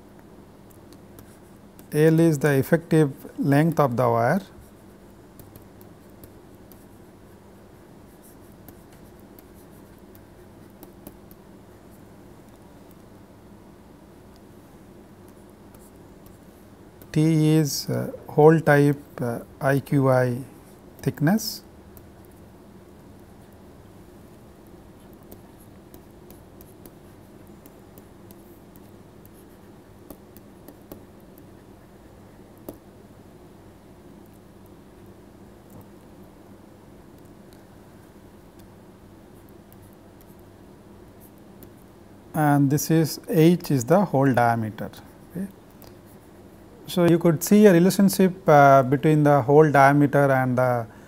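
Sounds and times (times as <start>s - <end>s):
steady low hum: 0.0s - 51.0s
stylus tapping on screen: 8.5s - 11.5s, 24.6s - 31.7s, 32.6s - 32.9s
stylus tapping on tablet: 30.0s - 31.6s, 32.6s - 32.9s.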